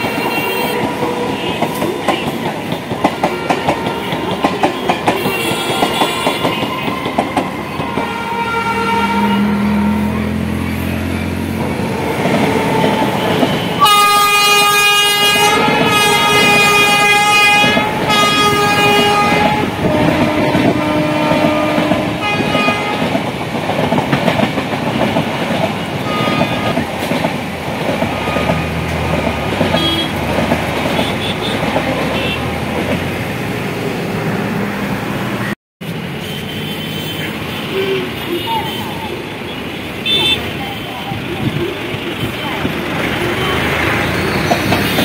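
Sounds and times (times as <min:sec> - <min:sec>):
locomotive air horn blasts: 0:00.0 - 0:01.8, 0:03.3 - 0:07.2, 0:07.8 - 0:10.4, 0:11.9 - 0:23.1, 0:26.0 - 0:26.9, 0:28.1 - 0:30.3
train wheels rumbling on rails: 0:00.0 - 0:36.3, 0:37.2 - 0:45.0.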